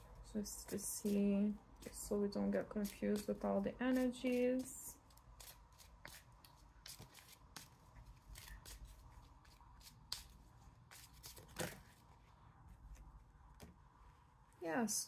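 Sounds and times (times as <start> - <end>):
brush of cards: 0.6 - 12.2
cards being shuffled: 2.8 - 12.1.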